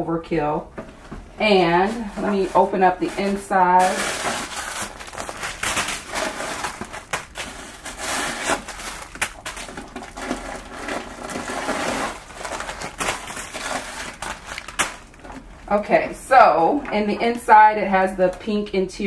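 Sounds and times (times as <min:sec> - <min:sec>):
tissue paper rustling and crinkling: 0:01.4 - 0:15.5.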